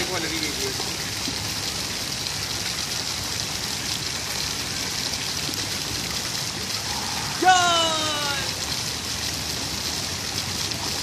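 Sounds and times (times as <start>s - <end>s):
fountain jets splashing into pool: 0.0s - 11.0s.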